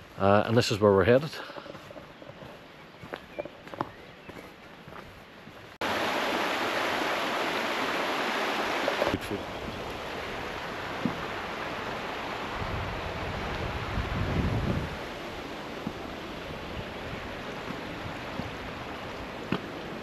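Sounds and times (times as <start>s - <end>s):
stream rushing over stones: 5.8s - 20.0s.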